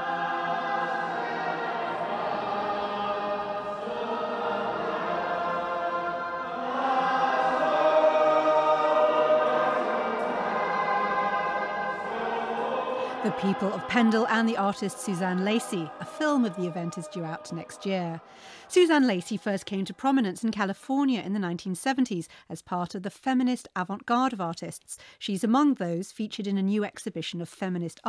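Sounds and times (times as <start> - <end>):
choir singing long held chords: 0.0 - 20.5.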